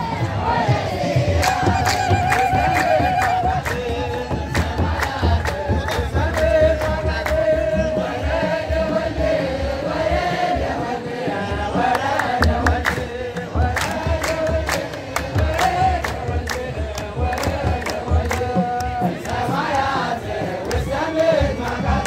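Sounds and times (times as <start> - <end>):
crowd singing a hymn: 0.0 - 22.0
drum beats: 0.0 - 22.0
hand claps: 1.3 - 7.7, 11.8 - 22.0.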